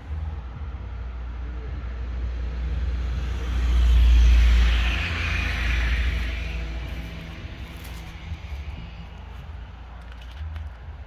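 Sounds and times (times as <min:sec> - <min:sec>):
steady low rumble: 0:00.0 - 0:11.0
motor vehicle passing by: 0:02.3 - 0:10.1.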